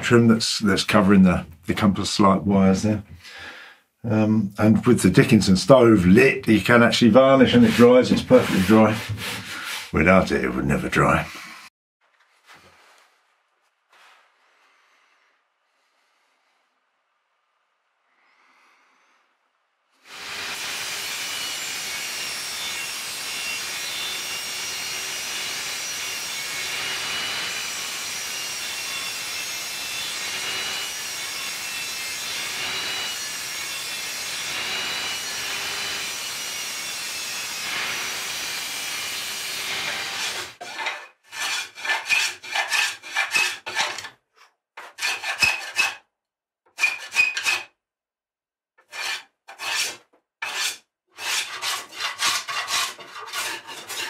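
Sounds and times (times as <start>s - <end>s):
table saw cutting wood: 6.0s - 11.7s, 20.0s - 44.1s, 44.8s - 46.0s, 46.7s - 47.7s, 48.8s - 54.0s
hand tool rasping on wood: 6.7s - 10.2s, 39.5s - 44.1s, 44.8s - 46.0s, 46.7s - 47.7s, 48.8s - 54.0s.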